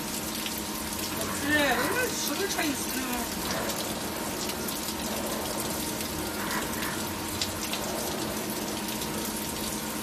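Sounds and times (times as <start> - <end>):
coolant spraying and splashing: 0.0 - 10.0
milling machine hum: 3.3 - 10.0.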